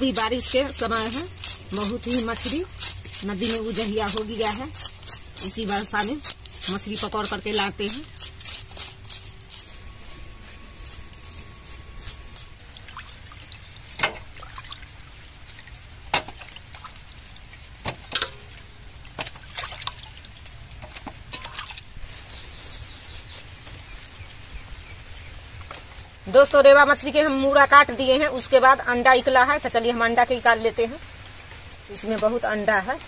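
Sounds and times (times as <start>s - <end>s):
knife scaling and cutting fish: 0.0s - 12.6s
steady high hiss: 20.0s - 33.0s.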